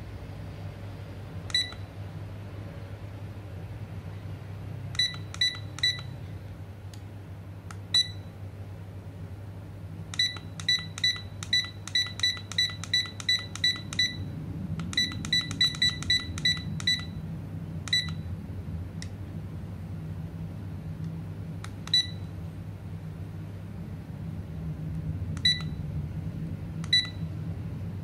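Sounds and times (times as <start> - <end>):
alarm clock beeps: 5.0 - 6.1, 10.2 - 14.2, 15.0 - 17.1, 17.9 - 18.2.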